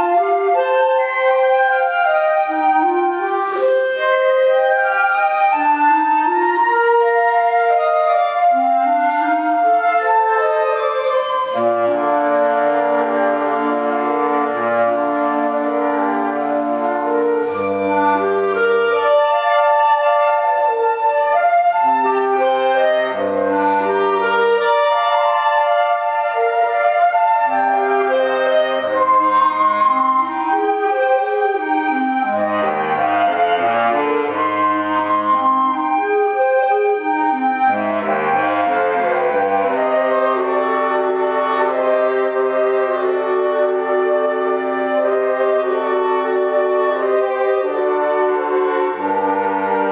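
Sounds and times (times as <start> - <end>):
bass clarinet low line: 0.0 - 49.9
woodwind ensemble playing: 0.0 - 49.9.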